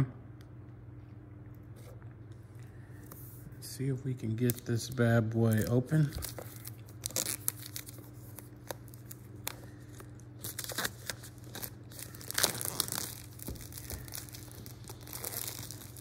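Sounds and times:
plastic wrap tearing and crinkling: 4.3s - 16.0s.

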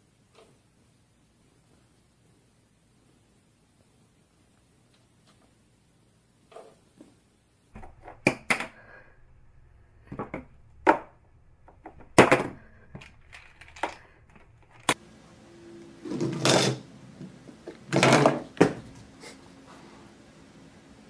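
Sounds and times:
objects knocked over clattering: 10.0s - 15.0s, 17.8s - 18.8s.

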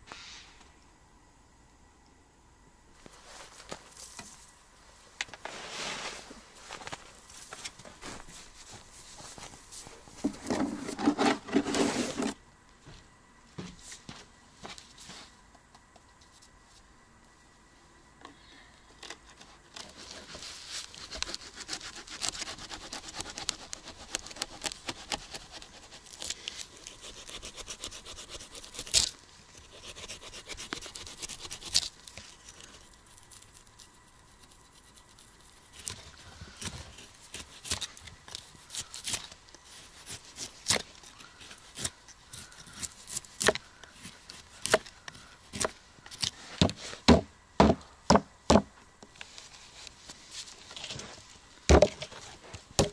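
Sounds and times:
knife scraping fish scales: 20.8s - 33.4s.

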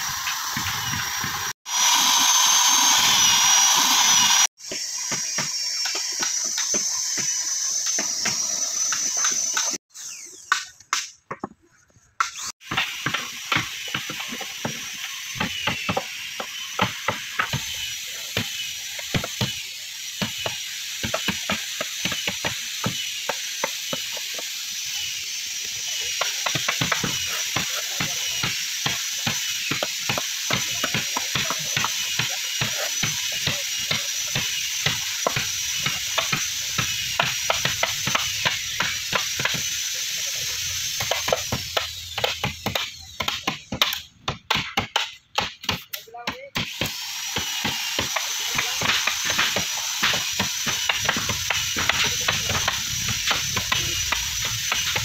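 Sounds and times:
hiss: 0.0s - 10.3s, 12.2s - 44.1s, 46.6s - 55.0s
hammers driving chisels into wood: 12.2s - 24.6s, 26.1s - 39.8s, 40.8s - 55.0s.

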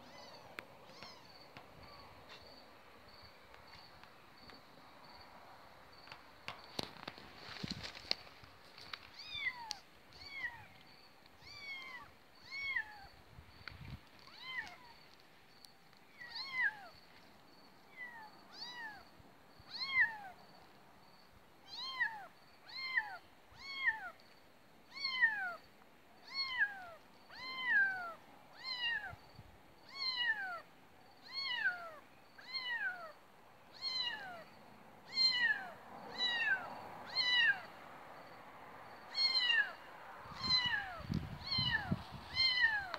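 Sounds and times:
cat meowing: 0.0s - 1.4s, 11.4s - 13.1s, 26.2s - 29.2s, 29.9s - 30.6s, 31.2s - 33.1s, 33.8s - 34.4s, 35.1s - 37.7s, 39.1s - 42.9s.

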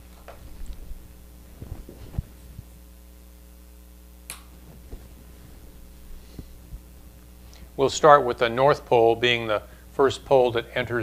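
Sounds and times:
electrical mains hum: 0.0s - 11.0s
sharp click: 4.3s - 4.6s.

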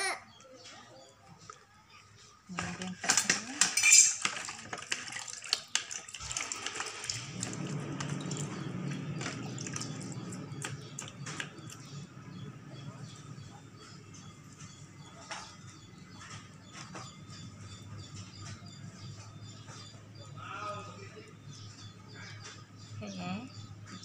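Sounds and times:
objects clinking against plastic: 2.5s - 11.8s
hands washing in water: 3.0s - 11.8s.

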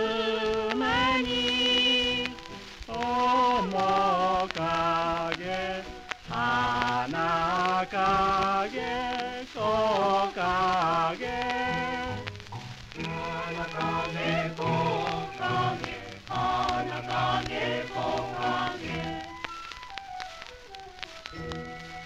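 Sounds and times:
orchestral film song on old record: 0.0s - 22.0s.

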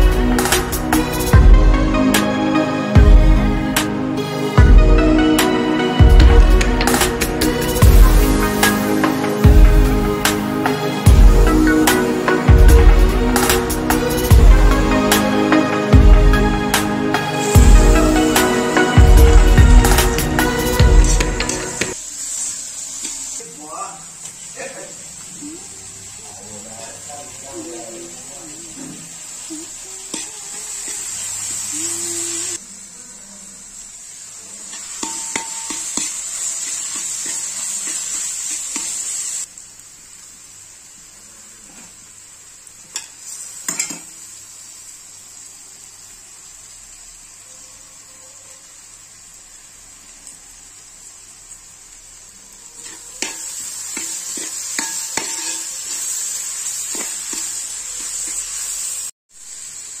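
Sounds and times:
onions sizzling in oil: 0.0s - 60.0s
spatula scraping metal pan: 54.0s - 55.8s.

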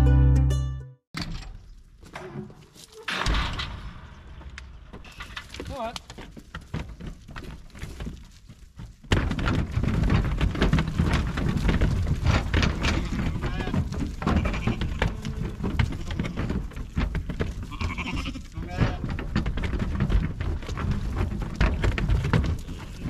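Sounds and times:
hooves clattering on a ramp: 1.3s - 23.0s
lambs bleating: 13.0s - 16.4s, 17.7s - 19.0s.

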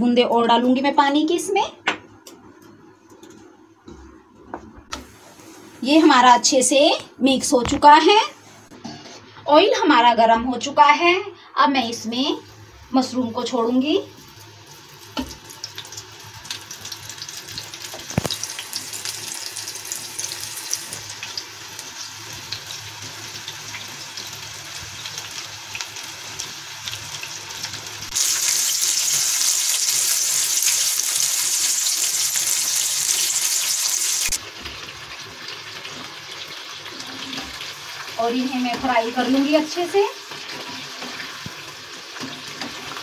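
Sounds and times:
food deep-frying with crackles: 12.3s - 43.0s.

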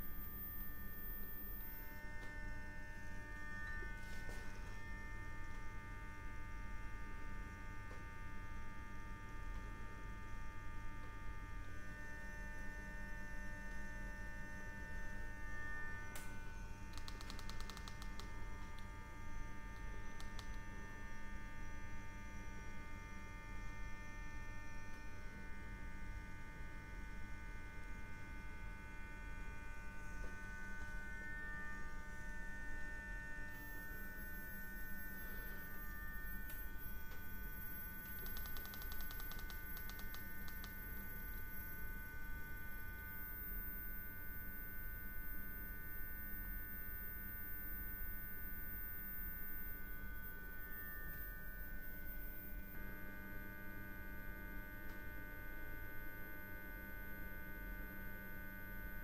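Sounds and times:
furnace mains hum: 0.0s - 59.0s
thin electrical whine: 0.0s - 59.0s
faint clicks: 38.1s - 40.8s.

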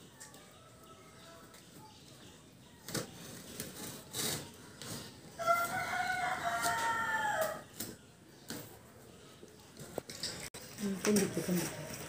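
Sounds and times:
knife scraping through packing tape: 3.5s - 5.2s.

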